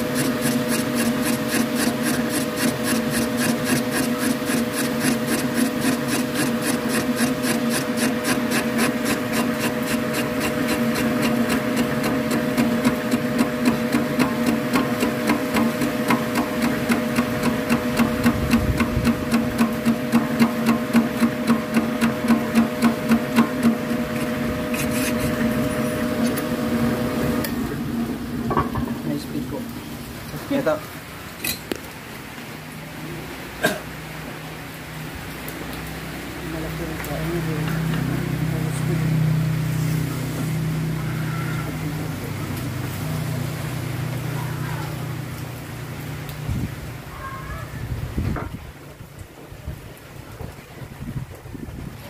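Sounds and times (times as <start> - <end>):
boring machine motor hum: 0.0 - 29.9.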